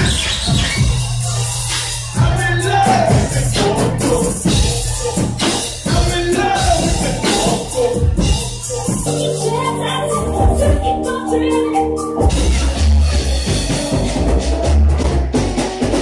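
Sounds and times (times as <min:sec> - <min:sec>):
loud dance music with vocal: 0:00.0 - 0:11.0
held synth chords: 0:09.0 - 0:13.0.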